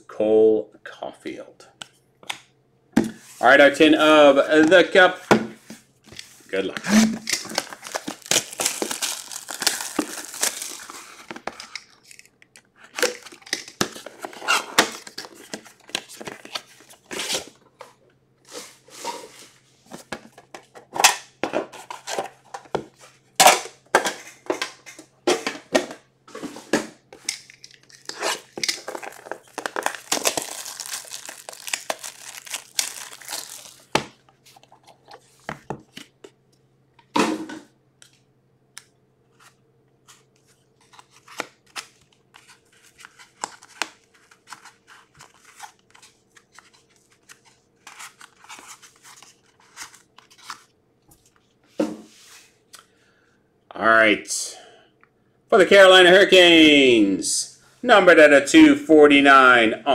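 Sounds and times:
plastic shrink-wrap crinkling and tearing: 7.2 - 11.4, 27.4 - 34.0.

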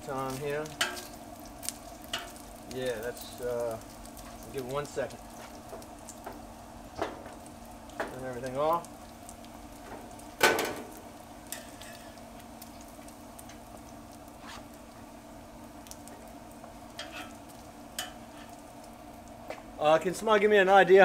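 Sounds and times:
bacon sizzling on a griddle: 0.0 - 21.0
metal tongs clacking on griddle: 0.6 - 2.5, 10.4 - 10.9, 11.5 - 12.2, 16.9 - 18.6.

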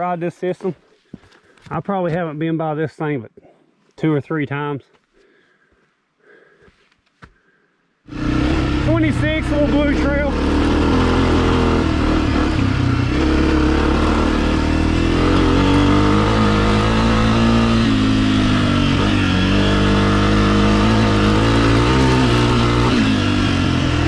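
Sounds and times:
dirt bike engine revving: 8.1 - 24.0.

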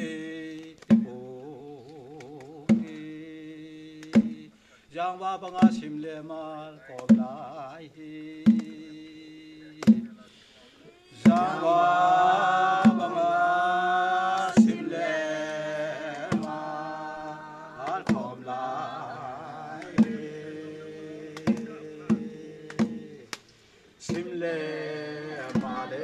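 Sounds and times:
group of voices singing: 0.0 - 9.0, 10.8 - 26.0
hand drum beats: 0.9 - 3.1, 4.0 - 4.5, 5.6 - 6.0, 7.0 - 7.5, 8.4 - 8.9, 9.8 - 10.2, 11.2 - 11.8, 12.7 - 13.4, 14.4 - 20.5, 21.2 - 23.3, 24.0 - 24.4, 25.4 - 25.9.

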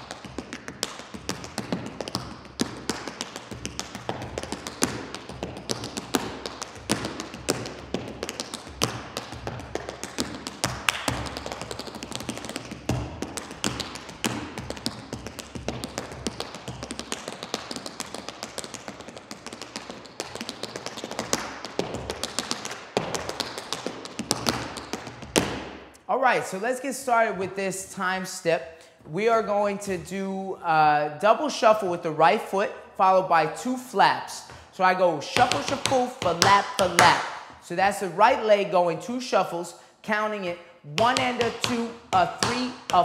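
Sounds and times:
tap shoes tapping on floor: 0.0 - 26.0, 35.4 - 38.0, 40.9 - 43.0.

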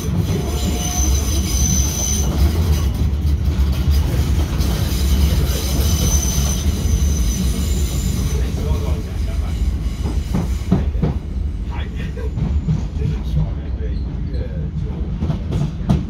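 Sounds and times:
high wheel squeal: 0.0 - 3.0, 4.6 - 11.0
train wheels rumbling on rail: 0.0 - 16.0.

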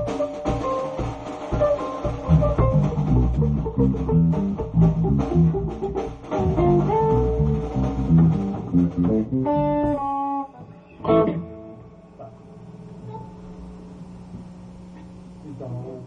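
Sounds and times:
drum kit: 0.0 - 10.4
bass guitar: 0.0 - 14.6
electric guitar: 0.0 - 16.0.

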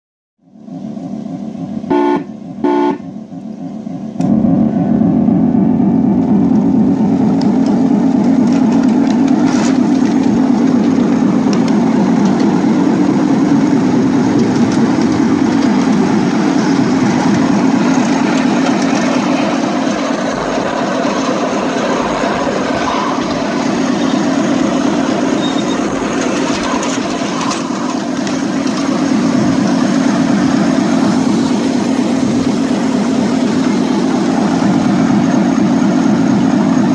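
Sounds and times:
locomotive running along track: 0.4 - 36.9
miniature locomotive horn toots: 1.9 - 3.2.

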